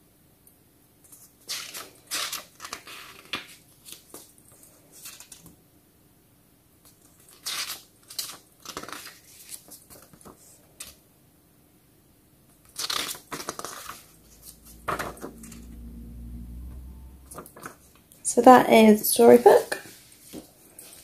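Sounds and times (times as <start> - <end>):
paper pages rustling: 1.0 - 5.6, 6.9 - 11.0, 12.6 - 15.7, 17.3 - 18.0, 19.2 - 21.0.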